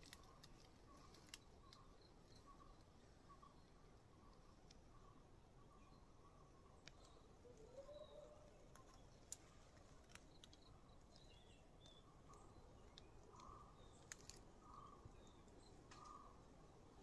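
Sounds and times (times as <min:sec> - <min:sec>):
small clicks: 0:00.0 - 0:01.8, 0:08.7 - 0:14.5
soft bird chirps: 0:00.0 - 0:17.0.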